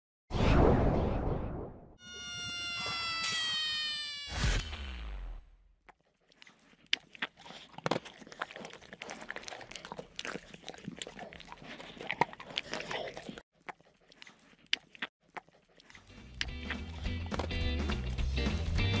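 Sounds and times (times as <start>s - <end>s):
cartoon crackling clicks: 2.0s - 5.5s.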